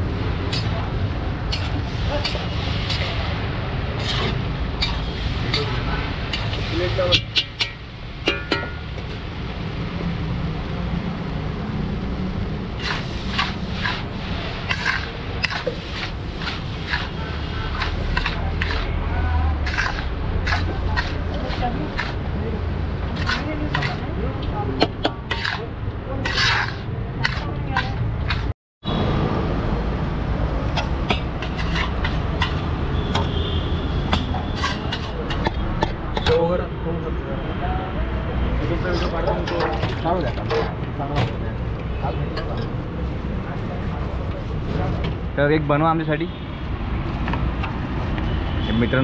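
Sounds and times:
low rumble of street traffic: 0.0s - 49.0s
metal ladle clinking on steel pan: 7.1s - 8.9s
steel plate scraping metal pan: 12.8s - 19.0s, 19.6s - 22.2s, 26.2s - 28.5s, 31.2s - 32.6s.

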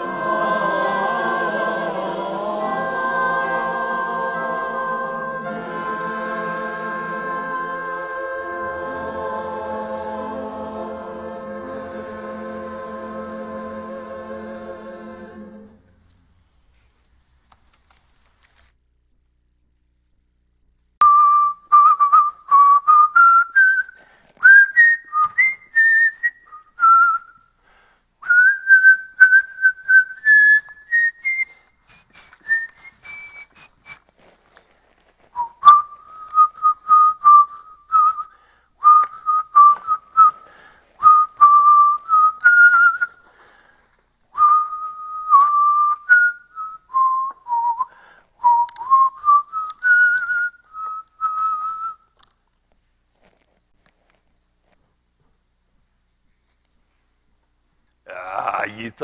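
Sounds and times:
man whistling a tune: 21.0s - 27.6s, 28.2s - 34.1s, 35.4s - 43.3s, 44.4s - 52.2s.

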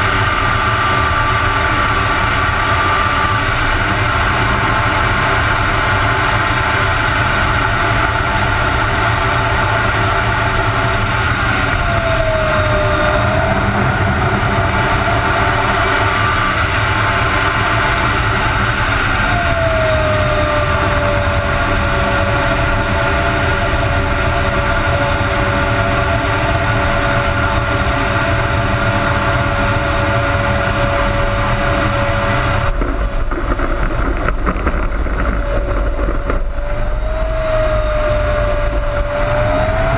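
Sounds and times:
jet turbine whining: 0.0s - 39.9s.

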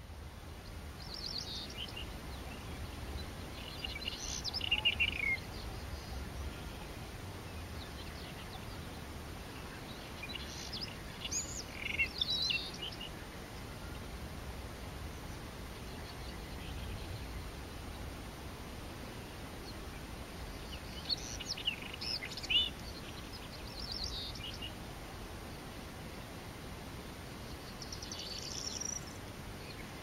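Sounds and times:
robin singing: 0.0s - 14.1s, 19.5s - 24.8s, 27.4s - 30.0s.

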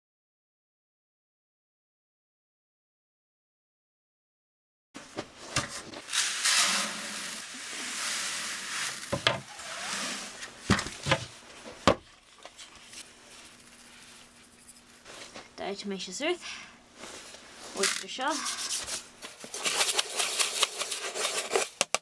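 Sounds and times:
grain pouring into plastic bucket: 6.0s - 10.4s
plastic buckets knocking: 8.8s - 9.6s, 10.4s - 12.0s.

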